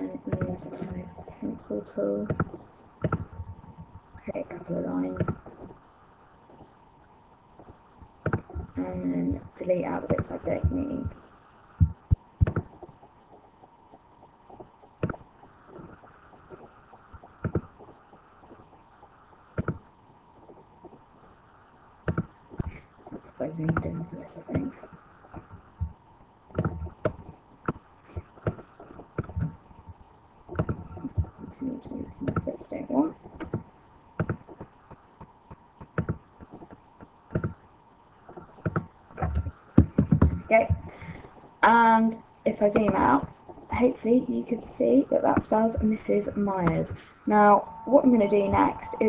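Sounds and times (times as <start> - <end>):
faint steady tone: 0.0 - 49.0
computer mouse buttons clicking: 11.8 - 12.8
computer mouse clicking: 11.8 - 13.0, 26.5 - 29.6, 33.3 - 37.6, 38.3 - 40.9.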